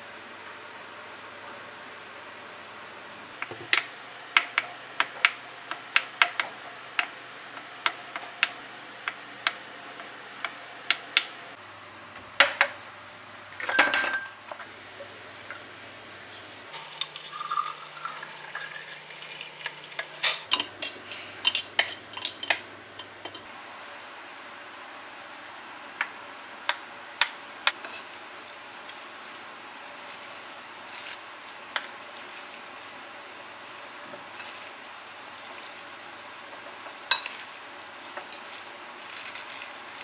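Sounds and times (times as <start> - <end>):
dishes clinking: 13.6 - 14.4, 16.8 - 23.5, 37.1 - 37.4
dishes clattering: 37.1 - 37.4.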